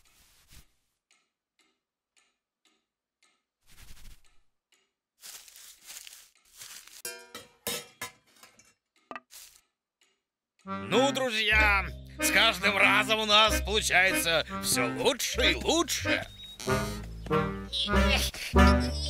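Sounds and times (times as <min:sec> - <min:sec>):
light background music: 0:10.7 - 0:19.0.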